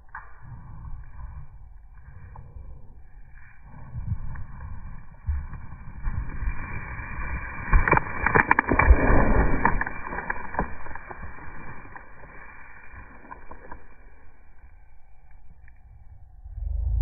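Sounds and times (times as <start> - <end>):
dog digging in loose dirt: 0.9 - 14.0.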